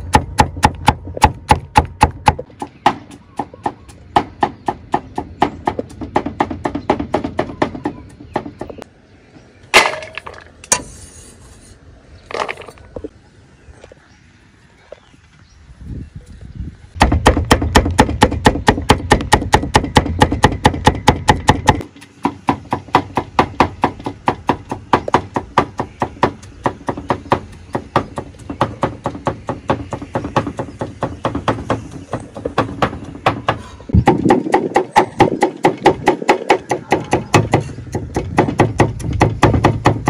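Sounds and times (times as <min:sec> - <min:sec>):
cleaver chopping on wooden block: 0:17.0 - 0:40.0.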